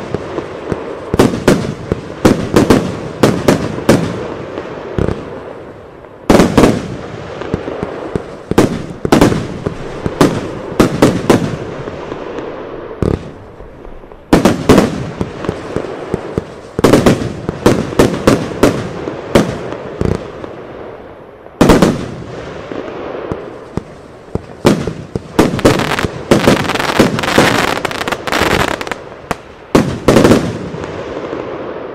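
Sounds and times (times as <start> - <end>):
firework aerial bursts: 0.0 - 31.9.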